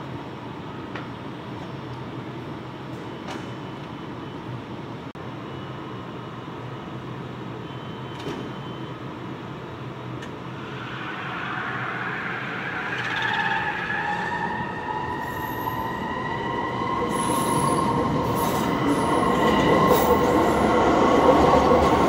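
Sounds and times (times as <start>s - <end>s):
train wheel and track rush: 9.9s - 22.0s
train wheels squealing: 10.6s - 20.7s.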